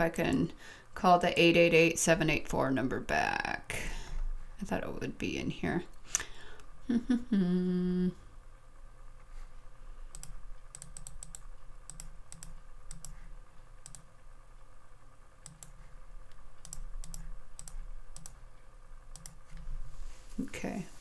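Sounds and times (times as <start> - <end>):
woman humming: 6.8 - 8.3
typing on computer keyboard: 10.2 - 13.2, 13.8 - 14.1, 15.4 - 15.8, 16.6 - 18.4.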